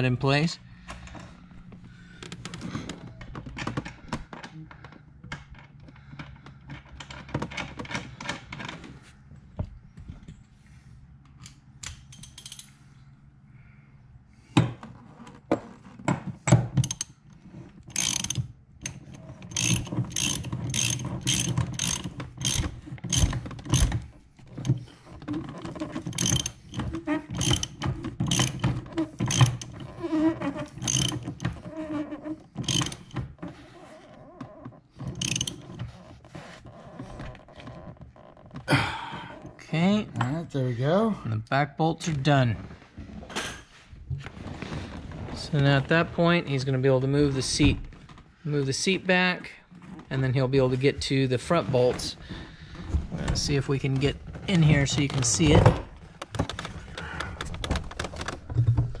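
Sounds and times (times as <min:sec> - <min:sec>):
socket ratchet clicking: 0:17.9 - 0:24.0, 0:26.1 - 0:28.6, 0:32.6 - 0:33.2, 0:35.1 - 0:35.7.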